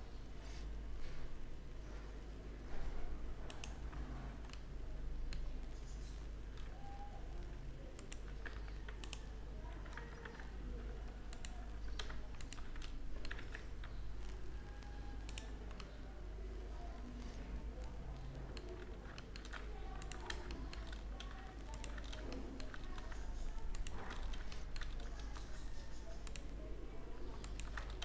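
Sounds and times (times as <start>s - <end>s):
keyboard keystrokes: 7.9s - 16.0s, 17.8s - 26.6s, 27.3s - 28.0s.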